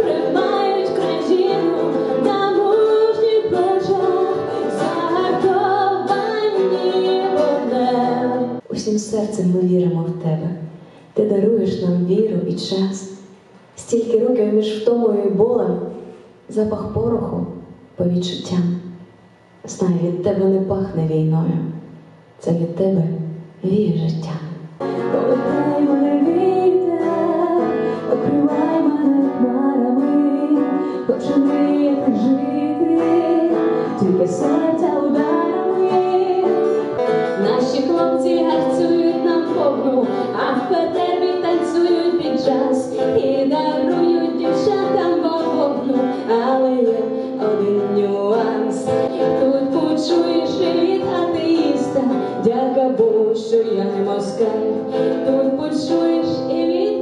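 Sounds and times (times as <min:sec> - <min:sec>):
woman singing: 0:00.0 - 0:10.5, 0:24.8 - 0:57.0
acoustic guitar: 0:00.0 - 0:22.4, 0:23.2 - 0:57.0.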